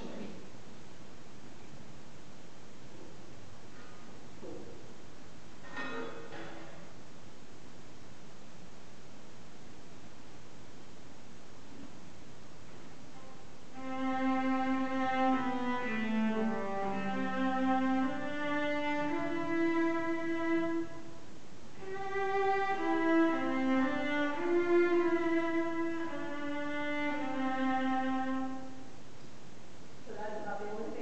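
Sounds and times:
bowed cello melody: 0:13.1 - 0:29.0.

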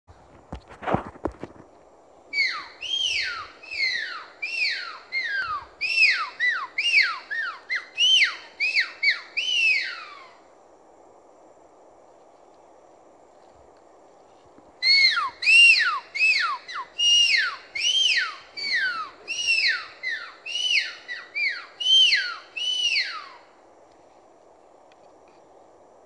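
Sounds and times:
forest hiss: 0:00.1 - 0:26.0
agouti whistles: 0:02.3 - 0:10.3, 0:14.8 - 0:23.5.

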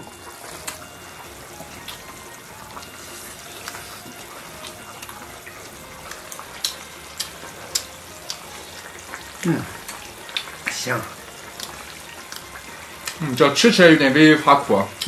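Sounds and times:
broth bubbling in a pot: 0:00.0 - 0:15.0
chopsticks clicking against bowls: 0:06.1 - 0:08.5.

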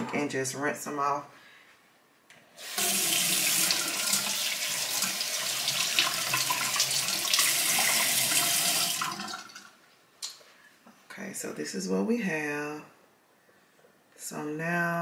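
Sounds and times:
sink tap running: 0:02.6 - 0:09.7.

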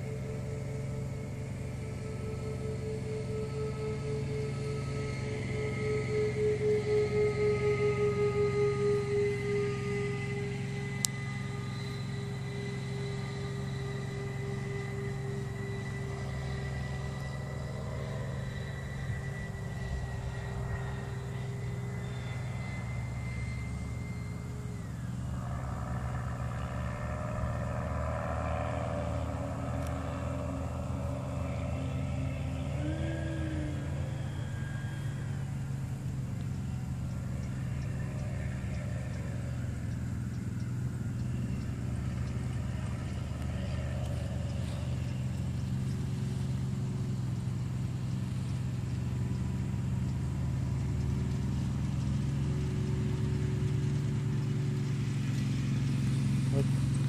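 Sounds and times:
model aircraft whine: 0:00.0 - 0:57.0
rush of aircraft: 0:00.0 - 0:57.0
steady low hum: 0:00.0 - 0:57.0.

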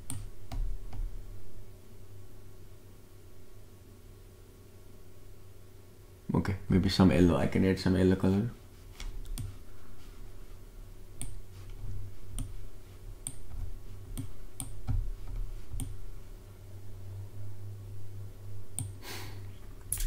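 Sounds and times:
computer mouse and key clicks: 0:00.0 - 0:01.1, 0:09.0 - 0:09.6, 0:11.2 - 0:12.6, 0:13.2 - 0:16.0, 0:18.7 - 0:19.0
steady low hum: 0:00.0 - 0:20.0.

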